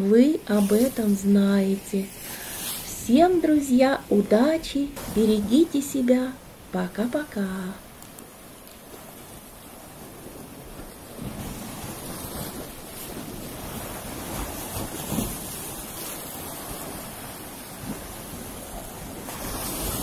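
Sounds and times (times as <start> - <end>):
waves breaking against sea wall: 0.0 - 20.0
loud wave splash: 4.4 - 6.8, 11.1 - 20.0.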